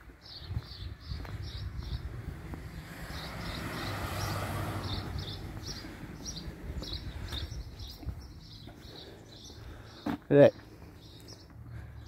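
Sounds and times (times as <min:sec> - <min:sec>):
vehicle passing: 0:00.8 - 0:08.9
bird chirping: 0:03.0 - 0:12.0.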